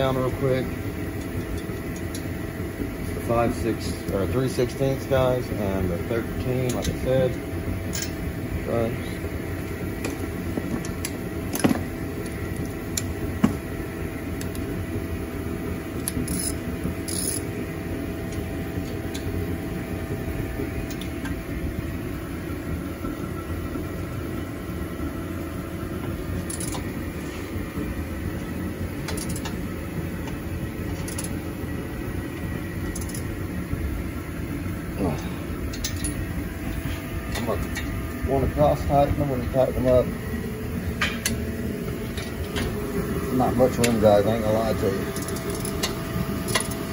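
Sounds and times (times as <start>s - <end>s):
low mechanical hum: 0.0s - 46.9s
wrench clicking on metal bolts: 26.5s - 26.8s, 29.1s - 29.5s, 31.0s - 31.3s.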